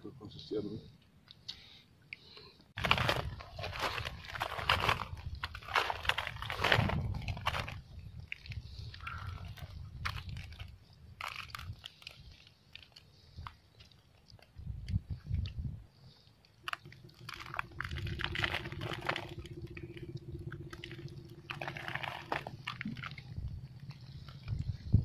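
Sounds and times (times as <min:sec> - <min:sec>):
wind rumbling on microphone: 0:02.8 - 0:12.5, 0:13.2 - 0:25.0
footsteps crunching on coral rubble: 0:02.8 - 0:14.0.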